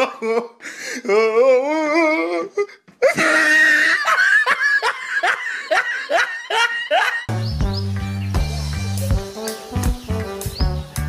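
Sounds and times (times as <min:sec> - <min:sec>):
repeated laughing: 0:00.0 - 0:07.3.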